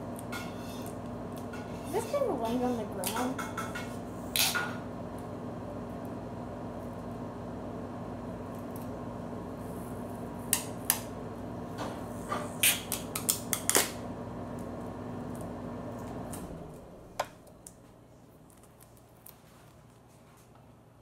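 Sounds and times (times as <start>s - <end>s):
sticky tape crackling and peeling: 17.4s - 20.0s.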